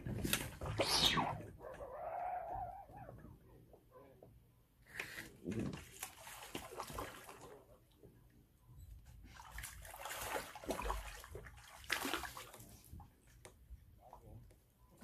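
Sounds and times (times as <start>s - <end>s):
water splashing and sloshing: 0.0s - 1.8s, 5.2s - 8.1s, 9.0s - 14.5s.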